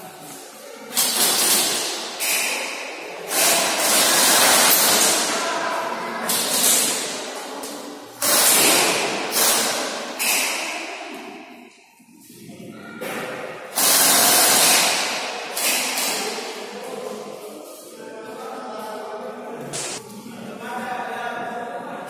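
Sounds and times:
airsoft gun bursts echoing: 0:01.0 - 0:05.6, 0:08.2 - 0:10.7, 0:13.7 - 0:16.6.

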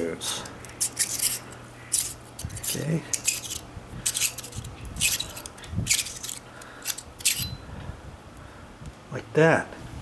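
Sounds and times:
threads scraping rasps: 0:00.7 - 0:07.5.

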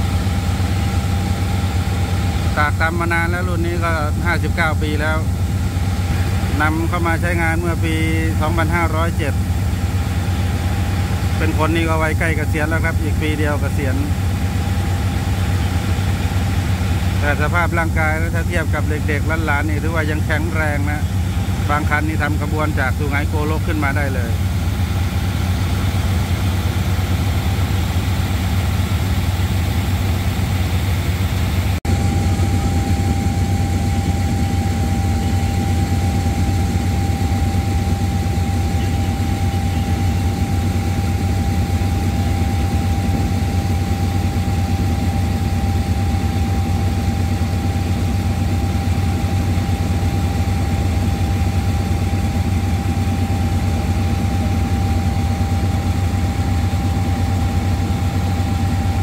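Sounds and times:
diesel locomotive idling: 0:00.0 - 0:59.0
steady high tone: 0:06.0 - 0:43.3.

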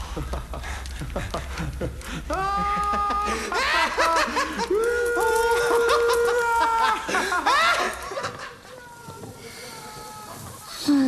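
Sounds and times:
group laughing and whooping: 0:00.1 - 0:09.1.

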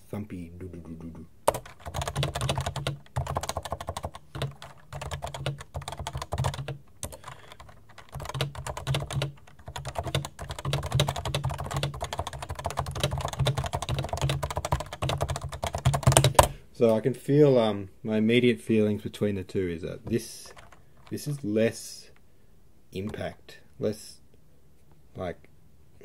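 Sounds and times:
fast thumpy keyboard typing: 0:01.4 - 0:16.5, 0:20.5 - 0:21.4.

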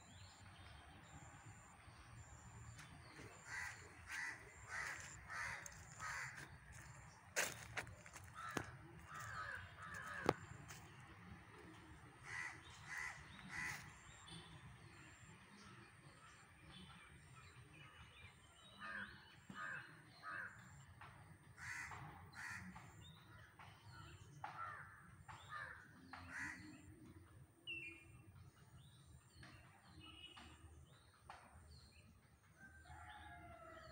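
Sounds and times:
faint birds calling: 0:02.2 - 0:10.8.

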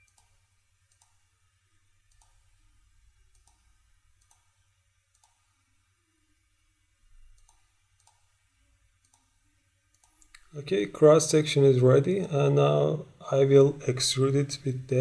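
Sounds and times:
computer mouse clicks: 0:00.0 - 0:01.2, 0:02.1 - 0:02.5, 0:03.3 - 0:04.5, 0:05.1 - 0:05.5, 0:07.2 - 0:08.3, 0:09.0 - 0:10.5
low steady hum: 0:00.0 - 0:15.0.

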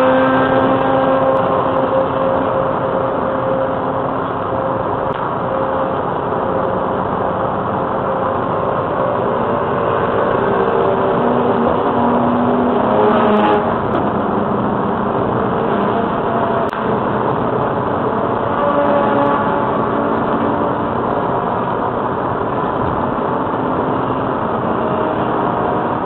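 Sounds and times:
car road and engine noise: 0:00.0 - 0:26.0.

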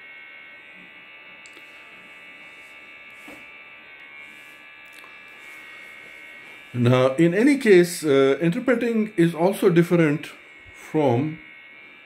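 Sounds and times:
faint buzz: 0:00.0 - 0:12.0
high-pitched electrical whine: 0:00.0 - 0:12.0.

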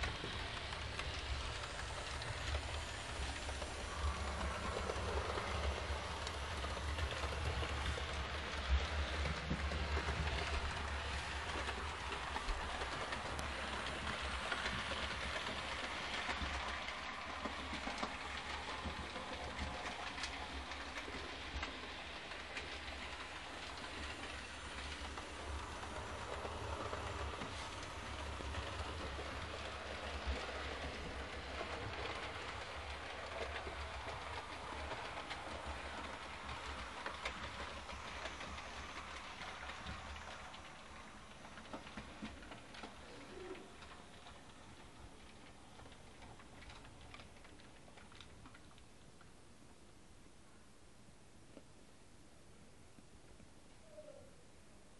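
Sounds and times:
model train rolling hiss: 0:00.0 - 0:47.0
wheels clicking over rail joints: 0:00.0 - 0:49.4.

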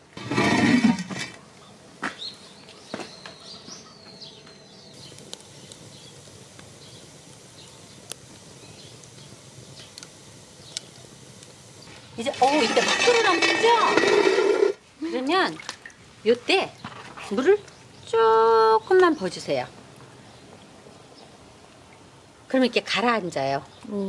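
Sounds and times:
bird chirping: 0:01.6 - 0:11.1
wood fire crackling: 0:04.9 - 0:24.0.

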